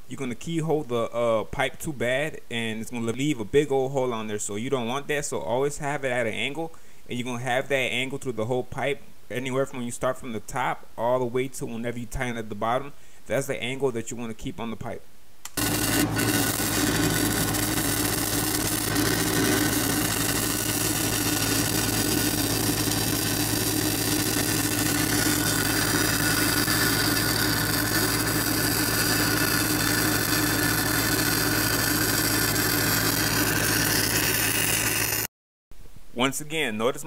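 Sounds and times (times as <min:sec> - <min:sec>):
welder engine humming: 0:15.5 - 0:35.3
welding arc crackling and hissing: 0:15.5 - 0:35.3.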